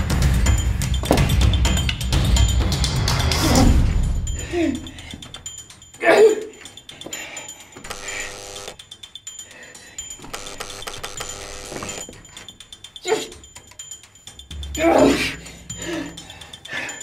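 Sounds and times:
man grunting and moaning: 0:03.4 - 0:05.1, 0:06.0 - 0:06.6, 0:14.6 - 0:16.2.

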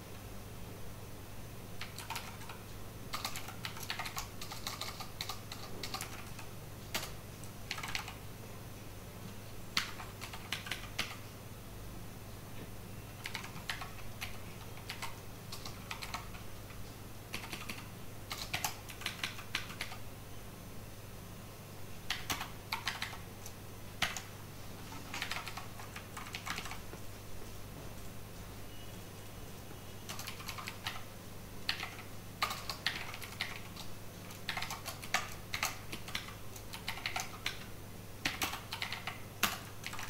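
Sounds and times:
keyboard typing: 0:01.8 - 0:08.2, 0:09.7 - 0:11.3, 0:13.1 - 0:20.0, 0:22.0 - 0:27.0, 0:30.0 - 0:40.0.

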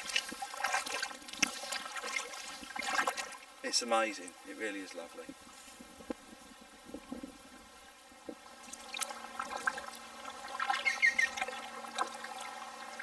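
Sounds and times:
light paddle splashes: 0:00.0 - 0:03.4, 0:08.6 - 0:12.5
water dripping off paddle: 0:00.0 - 0:03.4, 0:08.6 - 0:13.0
woodpecker calling: 0:10.6 - 0:11.6.

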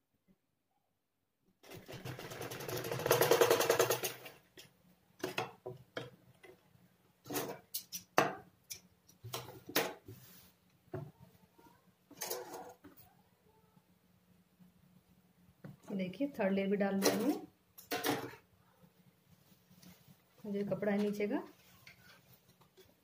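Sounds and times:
sewing machine stitching: 0:01.6 - 0:04.3.

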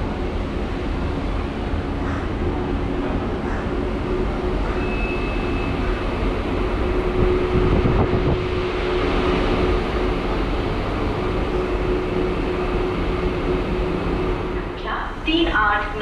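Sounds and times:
constant electrical tone: 0:00.0 - 0:16.0
train coach hum and rumble: 0:00.0 - 0:16.0.

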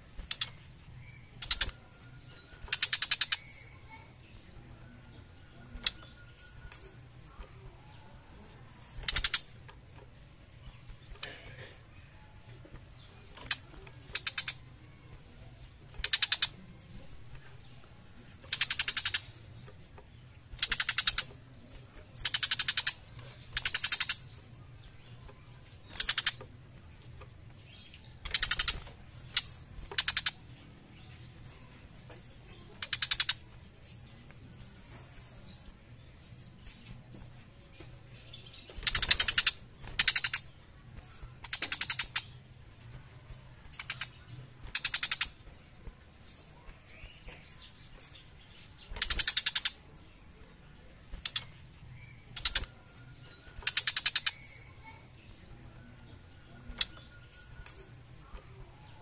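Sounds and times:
bird rattling chatter calls: 0:00.2 - 0:04.4, 0:07.8 - 0:09.8, 0:12.8 - 0:19.7, 0:20.5 - 0:50.3, 0:51.0 - 0:55.4.

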